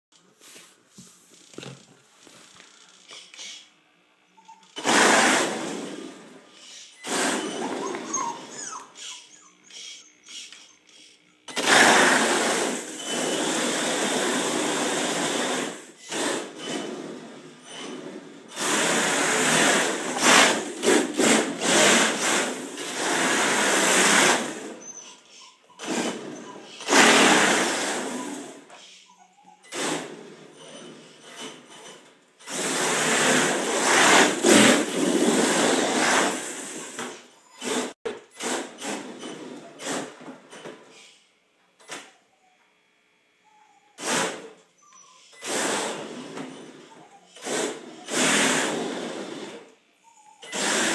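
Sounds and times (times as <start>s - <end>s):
tyres sliding on hard floor: 30.0s - 40.9s.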